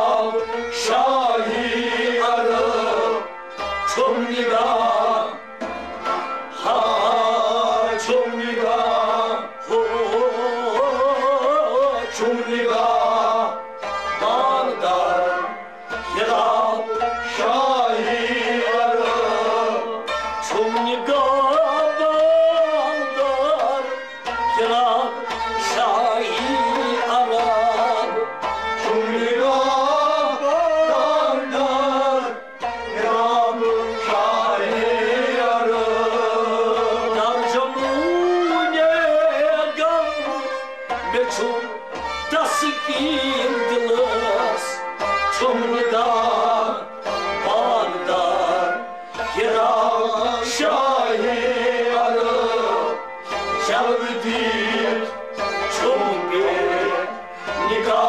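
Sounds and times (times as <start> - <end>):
bowed string melody: 0.0 - 58.0
harmonium: 0.0 - 58.0
plucked lute: 0.0 - 58.0.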